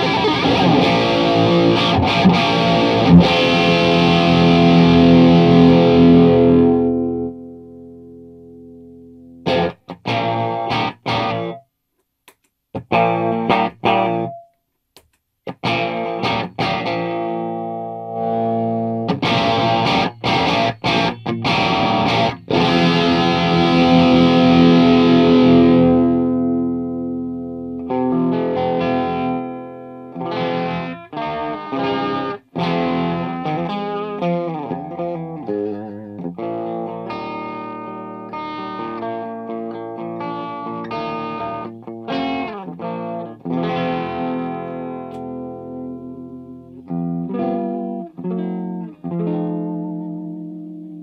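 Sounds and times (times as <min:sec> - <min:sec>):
distorted electric guitar chord: 0:00.0 - 0:11.6, 0:15.6 - 0:35.6.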